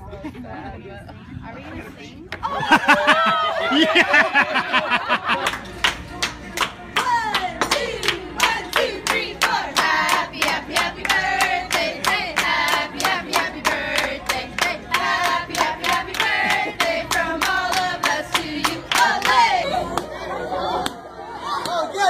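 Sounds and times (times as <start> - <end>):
group clapping in rhythm: 5.4 - 20.2
people singing a chant: 7.6 - 20.4.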